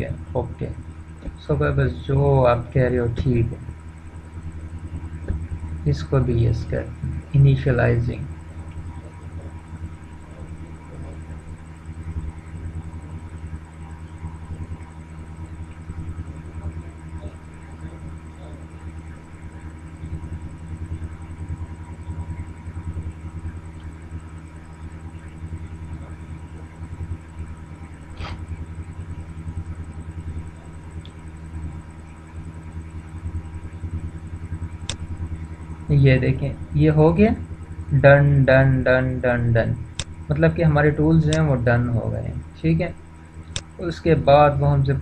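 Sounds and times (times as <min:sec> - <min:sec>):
faint thin whine: 0:00.0 - 0:45.0
steady low hum: 0:00.0 - 0:45.0
sharp click: 0:43.5 - 0:43.8.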